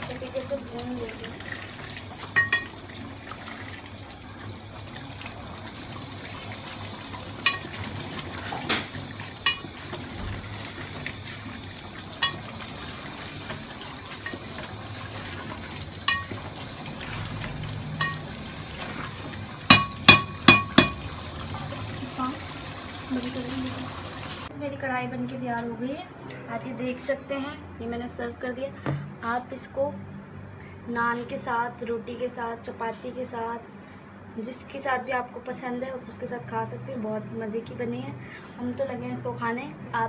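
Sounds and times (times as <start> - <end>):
steady hiss from gas stove: 1.8 - 16.9
metal spoon clinking against pot: 16.1 - 16.3.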